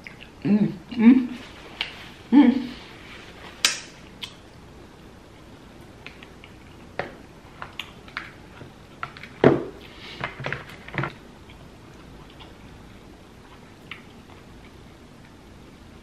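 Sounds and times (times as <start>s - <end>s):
wet clicks and squishes of food: 3.6s - 4.4s, 5.9s - 9.4s, 13.8s - 15.3s.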